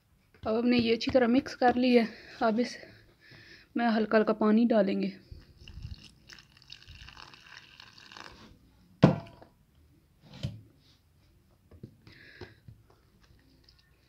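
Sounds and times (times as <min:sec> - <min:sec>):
water pouring into flour: 0:05.4 - 0:08.6.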